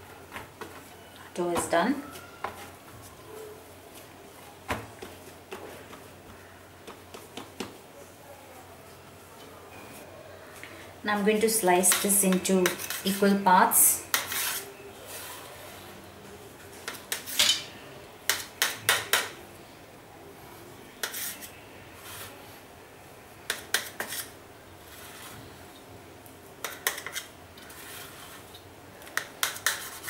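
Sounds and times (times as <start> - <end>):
knife scraping a steel plate: 12.6 - 13.2, 14.1 - 14.7, 21.0 - 22.4, 23.5 - 24.3, 26.6 - 28.4, 29.2 - 30.0.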